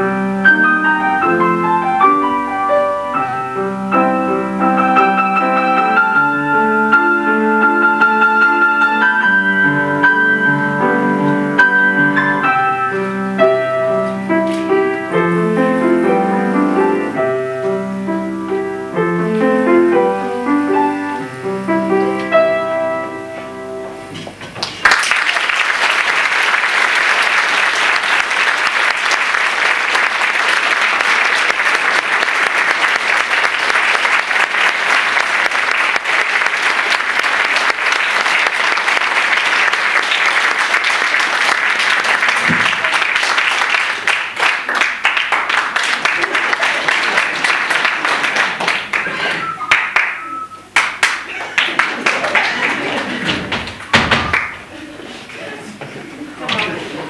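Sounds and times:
classical piano piece: 0.0s - 24.8s, 27.2s - 54.8s
audience applause: 24.6s - 54.8s.

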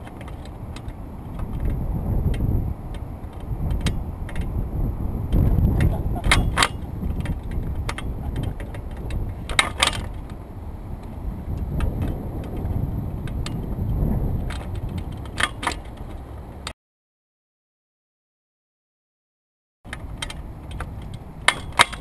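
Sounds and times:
light clicks and rattles: 0.0s - 4.6s, 5.3s - 13.7s, 14.4s - 16.7s, 19.9s - 22.0s
wind buffeting microphone: 0.0s - 16.7s.

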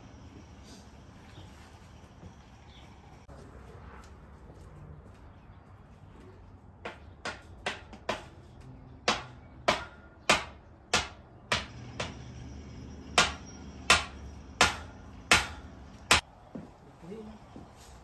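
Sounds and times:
hammer blows: 9.0s - 16.2s.

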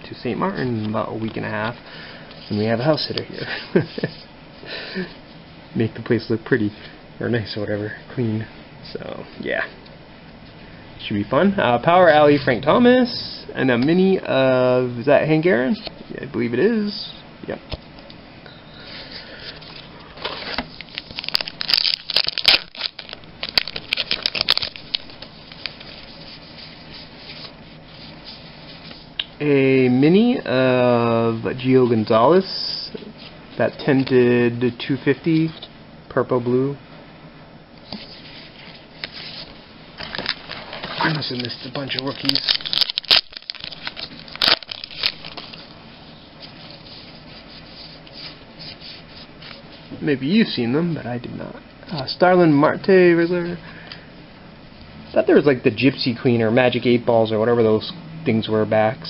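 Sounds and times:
trading cards flicked and rustling: 19.7s - 26.0s, 40.0s - 45.6s
cards sliding and rubbing: 23.9s - 29.1s, 37.8s - 39.6s, 46.4s - 49.6s.

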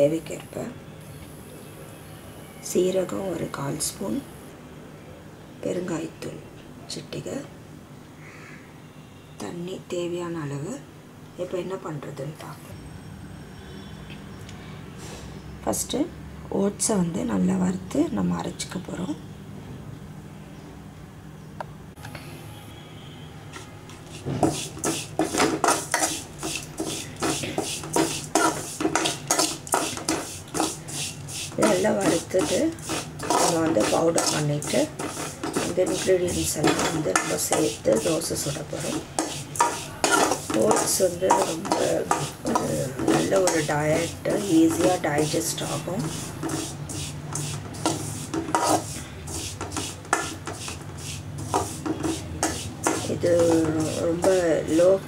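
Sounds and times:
ladle stirring oats in metal pan: 24.1s - 54.4s
dry oat flakes rustling: 24.5s - 38.1s.

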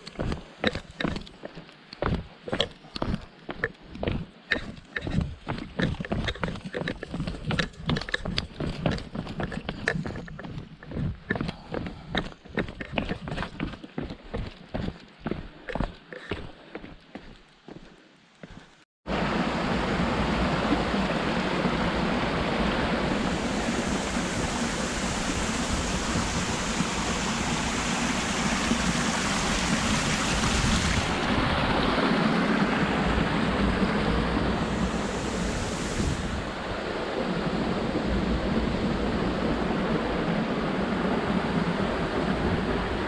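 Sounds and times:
quiet footsteps: 0.0s - 18.9s
waterfall rushing: 19.1s - 43.0s.

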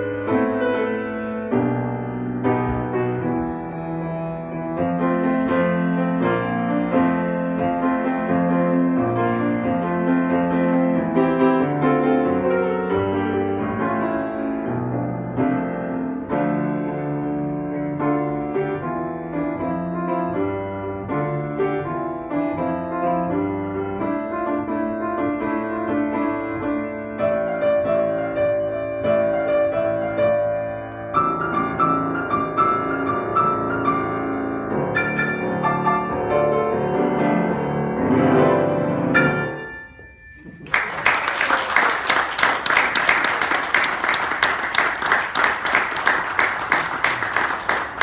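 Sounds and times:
solo grand piano piece: 0.0s - 41.3s
audience applauding: 40.5s - 48.0s.

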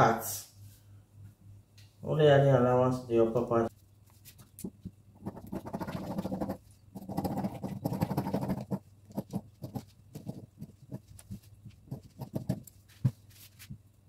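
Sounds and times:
satin fabric rustling: 12.6s - 13.9s.

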